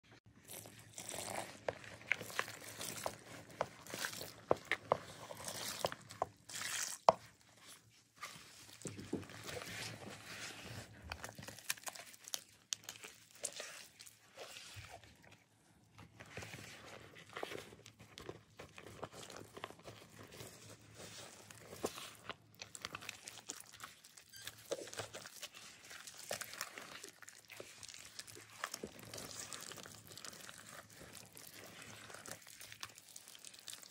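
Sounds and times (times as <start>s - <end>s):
wet paste mixing: 0.1s - 33.9s
chalk powder crunching: 0.4s - 8.8s, 18.7s - 33.9s.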